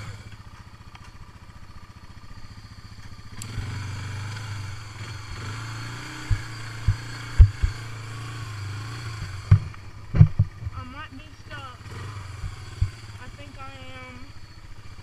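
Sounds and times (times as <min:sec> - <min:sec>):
quad bike engine under throttle: 0:00.0 - 0:15.0
sharp knocks from ruts: 0:03.0 - 0:10.8, 0:11.9 - 0:13.2.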